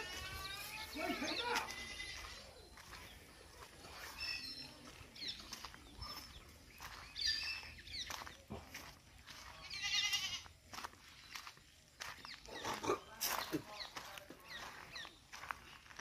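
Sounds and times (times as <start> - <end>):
wavering animal bleat: 0.0 - 2.4, 9.6 - 10.5.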